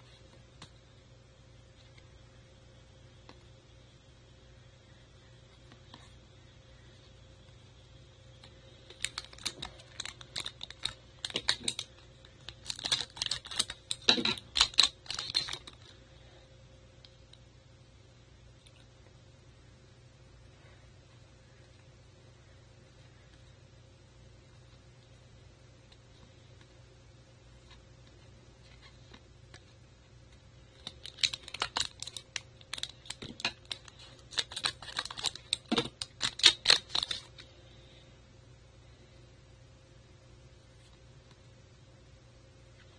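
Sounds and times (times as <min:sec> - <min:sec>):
foil wrapper crinkling: 0:08.9 - 0:16.0, 0:30.7 - 0:37.4
cards being shuffled by hand: 0:27.6 - 0:37.4.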